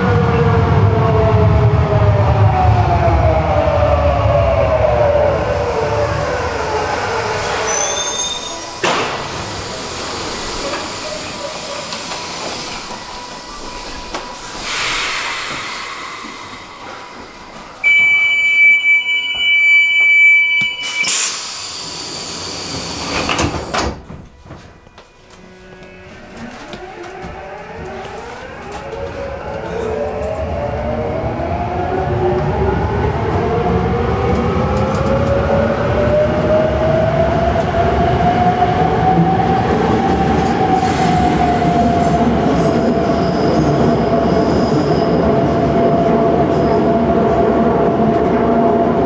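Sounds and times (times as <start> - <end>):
train clunk: 8.8 - 9.6
door-warning tone: 17.8 - 21.2.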